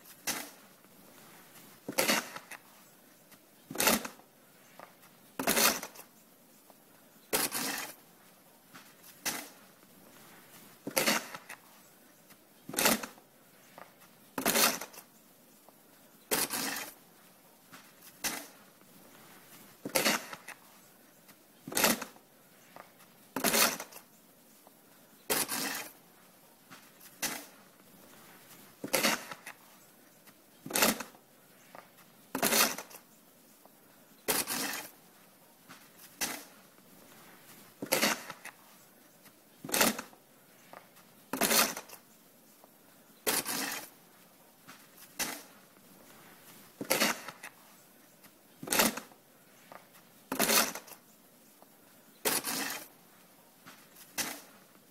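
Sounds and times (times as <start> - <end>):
snow shovel scraping: 0.0 - 2.7, 3.6 - 6.1, 7.3 - 11.9, 12.7 - 15.1, 16.3 - 17.1, 17.7 - 20.9, 21.6 - 24.1, 25.3 - 26.1, 26.7 - 29.8, 30.6 - 33.0, 34.2 - 38.8, 39.6 - 42.1, 43.2 - 47.8, 48.6 - 51.0, 52.2 - 54.8
shovel scuffing: 0.0 - 24.1, 25.3 - 33.1, 34.2 - 42.1, 43.2 - 54.9.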